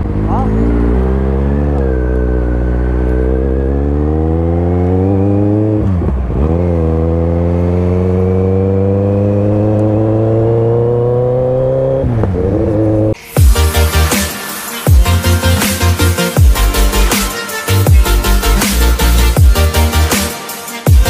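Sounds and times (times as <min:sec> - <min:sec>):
motorcycle engine accelerating: 0:00.0 - 0:14.1.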